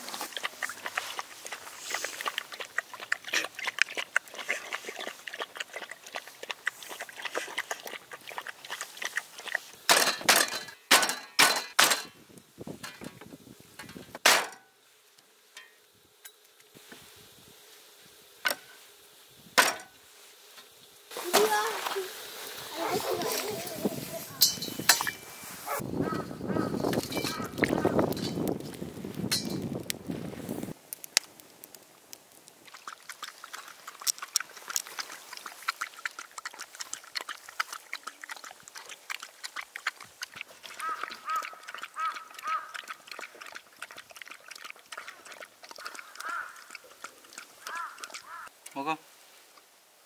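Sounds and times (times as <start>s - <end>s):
dog lapping milk: 0.2s - 9.7s, 32.6s - 48.5s.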